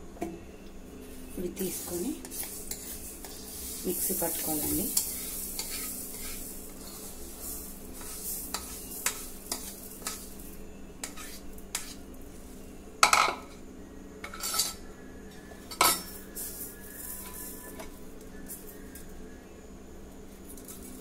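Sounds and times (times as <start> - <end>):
grains clicking into metal jar: 1.6 - 11.2.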